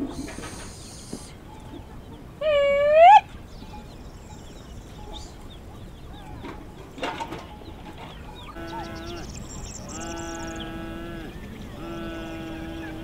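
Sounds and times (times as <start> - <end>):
small birds chirping: 0.0 - 13.0
loud animal call: 2.4 - 3.3, 8.4 - 13.0
livestock bleating: 8.5 - 13.0.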